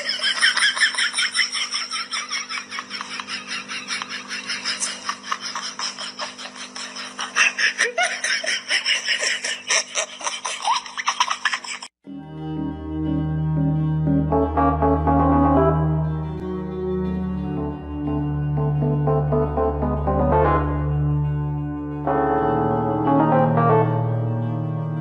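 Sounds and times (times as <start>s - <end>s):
person giggling: 0.0s - 11.9s.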